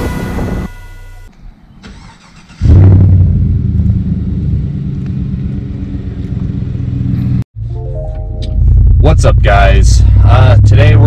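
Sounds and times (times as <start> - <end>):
pickup truck engine starting: 1.8 - 4.2
engine idling low rumble: 3.0 - 11.0.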